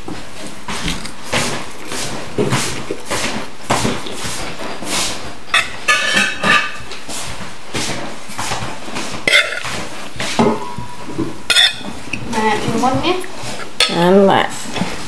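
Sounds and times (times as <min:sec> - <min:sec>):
metal spoon clinking on plates: 0:05.5 - 0:06.8, 0:09.3 - 0:09.7, 0:11.5 - 0:12.0, 0:13.8 - 0:14.0.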